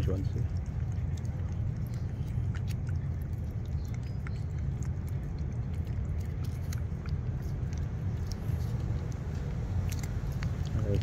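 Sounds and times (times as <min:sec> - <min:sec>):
cats licking and lapping: 0:00.0 - 0:11.0
steady low rumble: 0:00.0 - 0:11.0.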